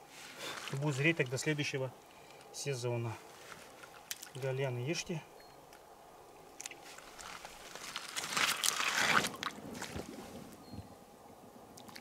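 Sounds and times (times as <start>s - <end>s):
splashing in water: 3.9s - 4.4s, 6.6s - 10.4s, 11.8s - 12.0s
boots crunching on wet gravel: 6.8s - 10.1s.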